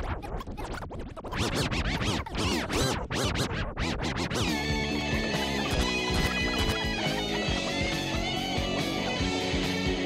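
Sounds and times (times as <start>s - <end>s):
record scratching: 0.0s - 10.0s.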